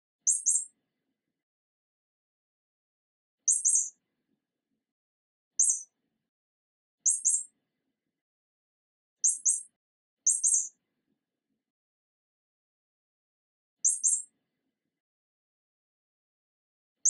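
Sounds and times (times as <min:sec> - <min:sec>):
mouse squeaking: 0:00.3 - 0:00.7, 0:03.5 - 0:03.9, 0:05.6 - 0:05.9, 0:07.1 - 0:07.5, 0:09.2 - 0:09.7, 0:10.3 - 0:10.7, 0:13.8 - 0:14.3.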